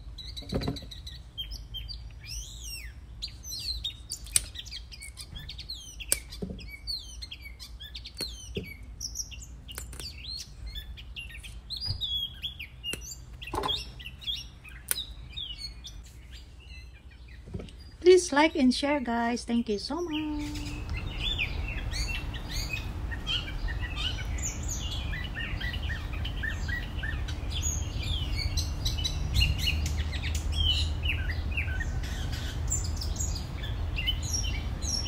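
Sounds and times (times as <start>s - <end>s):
small birds chirping and singing: 0.0s - 35.0s
string beans snapping by hand: 4.1s - 5.2s, 6.0s - 6.4s, 8.1s - 8.4s, 9.7s - 10.3s, 12.9s - 13.2s, 14.8s - 15.1s
person talking: 18.0s - 20.9s.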